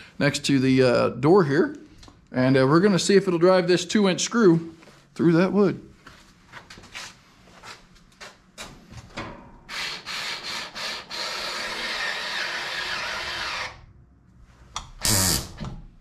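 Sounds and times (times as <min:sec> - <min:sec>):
electric screwdriver grinding: 0:09.7 - 0:13.8, 0:15.0 - 0:15.6.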